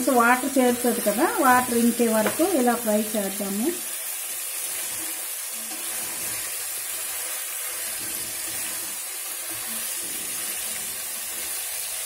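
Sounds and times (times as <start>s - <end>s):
chicken sizzling in hot oil: 0.0s - 12.0s
spoon stirring in pan: 4.5s - 12.0s.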